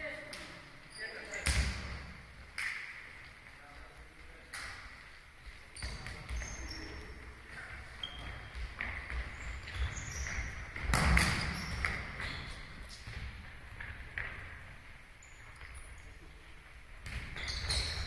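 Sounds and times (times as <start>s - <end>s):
ball bouncing on hall floor: 0.0s - 18.0s
shoes squeaking on floor: 0.8s - 1.6s, 5.4s - 13.3s, 15.2s - 16.4s, 17.1s - 18.0s.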